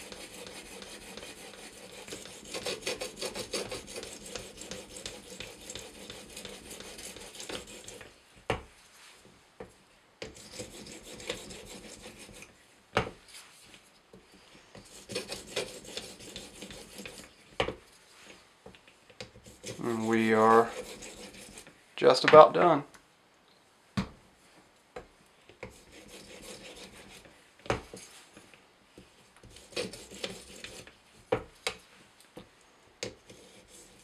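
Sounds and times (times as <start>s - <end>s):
stone rasping along knife edge: 0.0s - 8.1s, 10.2s - 12.5s, 14.8s - 17.4s, 19.2s - 21.7s, 25.6s - 27.3s, 29.4s - 30.9s, 33.0s - 34.0s.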